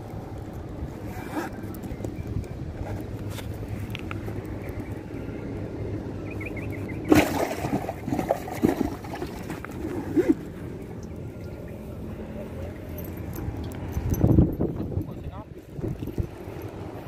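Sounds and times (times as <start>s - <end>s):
water splashing: 6.9s - 12.8s
wind on microphone: 13.9s - 17.0s.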